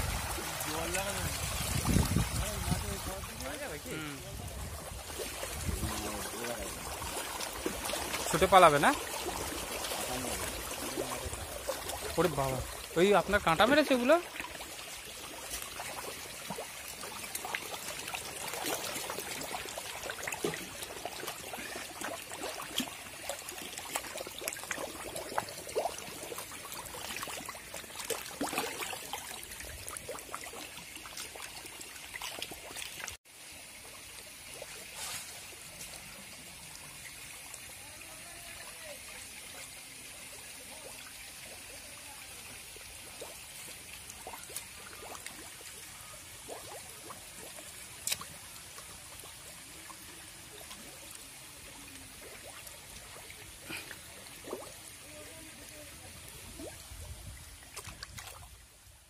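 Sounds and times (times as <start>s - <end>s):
steady water noise: 0.0s - 59.0s
catfish splashing at water surface: 4.4s - 13.0s, 13.9s - 33.1s.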